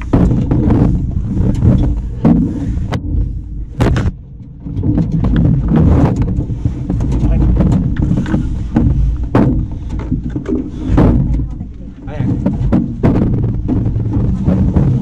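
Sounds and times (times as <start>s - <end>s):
steady low rumble: 0.0s - 15.0s
knocks on metal canoe hull: 3.7s - 15.0s.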